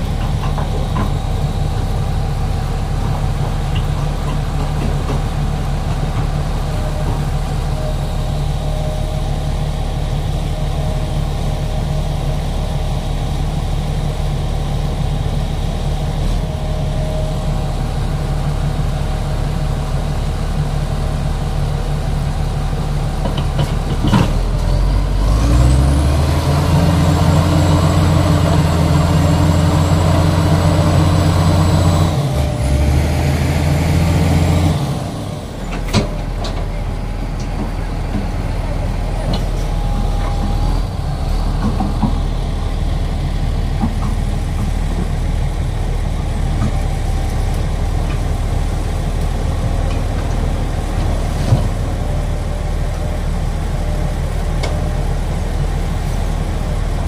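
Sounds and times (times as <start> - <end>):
heavy diesel engines running: 0.0 - 57.0
engine revving under load: 24.1 - 36.2.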